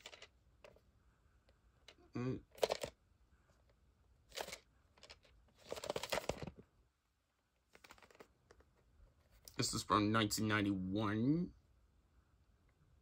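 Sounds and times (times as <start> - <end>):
cardboard sleeve rustling: 4.3 - 6.6, 7.7 - 9.5.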